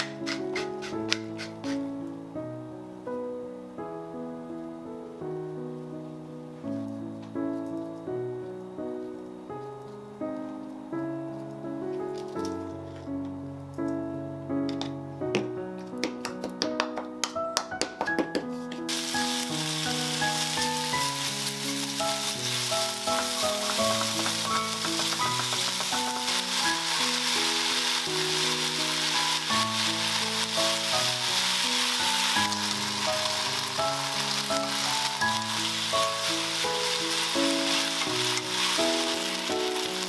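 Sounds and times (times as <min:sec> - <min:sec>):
soft background music: 0:00.0 - 0:40.0
chopsticks stirring: 0:18.9 - 0:40.0
food sizzling in a frying pan: 0:18.9 - 0:40.0.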